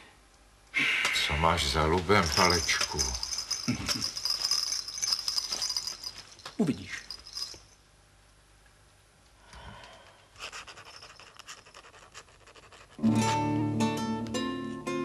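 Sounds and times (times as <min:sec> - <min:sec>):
quill scratching on paper: 0:10.4 - 0:13.0
acoustic guitar: 0:13.0 - 0:15.0.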